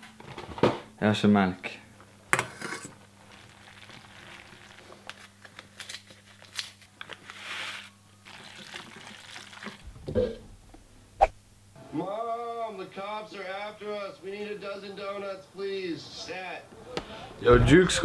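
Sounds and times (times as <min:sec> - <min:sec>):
faint steady hum: 0:00.0 - 0:17.5
paper sachet crinkling and tearing: 0:03.2 - 0:09.8
powder pouring hiss: 0:07.3 - 0:10.0.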